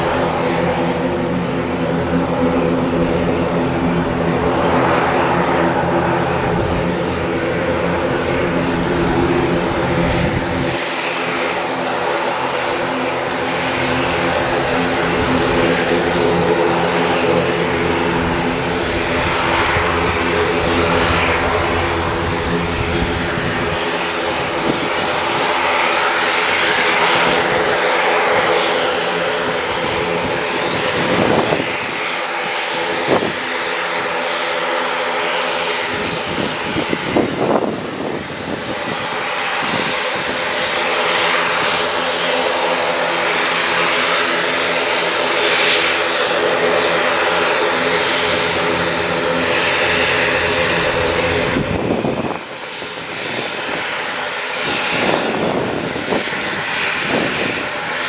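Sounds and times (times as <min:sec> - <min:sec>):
turboprop engines droning: 0:00.0 - 0:58.0.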